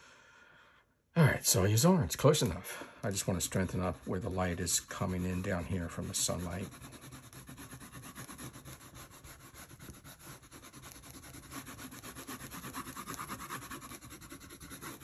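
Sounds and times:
pencil scratching on paper: 3.1s - 15.0s.

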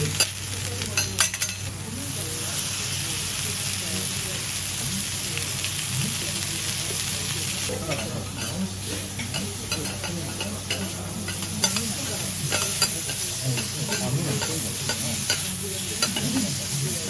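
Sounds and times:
meat sizzling on a griddle: 0.0s - 17.0s.

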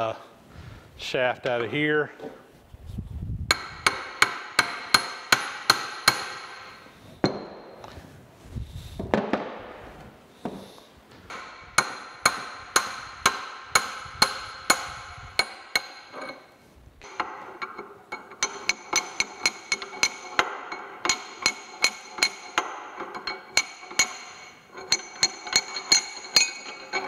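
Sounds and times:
metal scraping: 11.3s - 27.0s.

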